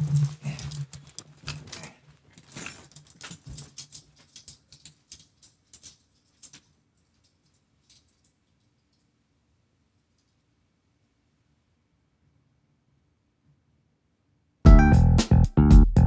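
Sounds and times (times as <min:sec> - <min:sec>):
clothes rustling: 0:00.0 - 0:09.1
small clicks and knocks: 0:00.1 - 0:09.2.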